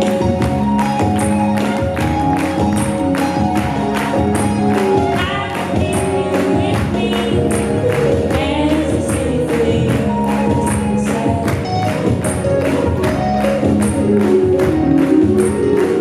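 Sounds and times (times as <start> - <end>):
folk-rock band playing: 0.0 - 6.6.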